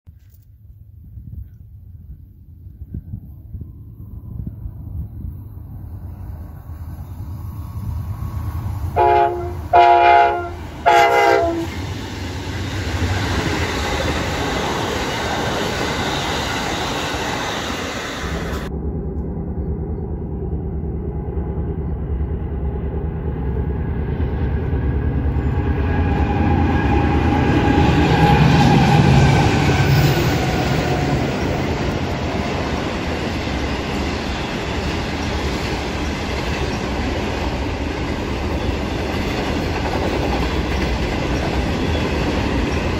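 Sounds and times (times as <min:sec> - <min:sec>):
train rumbling: 0:00.1 - 0:42.9
freight train passing close: 0:02.0 - 0:42.9
train horn blasts: 0:08.9 - 0:11.8
train wagons clattering: 0:28.1 - 0:42.9.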